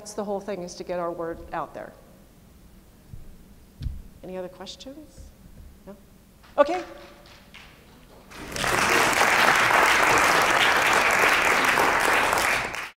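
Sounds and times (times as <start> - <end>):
audience applause: 8.3 - 13.0.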